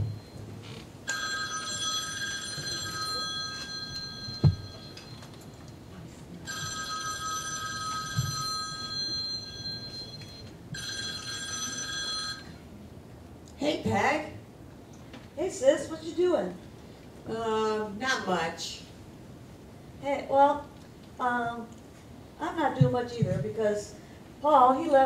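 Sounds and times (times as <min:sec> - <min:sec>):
electronic telephone ringing: 0:01.1 - 0:05.4, 0:06.5 - 0:12.6.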